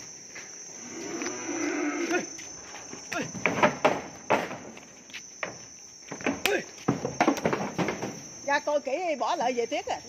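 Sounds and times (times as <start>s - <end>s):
sharp knocks and clatter: 3.3s - 4.8s, 5.4s - 8.3s.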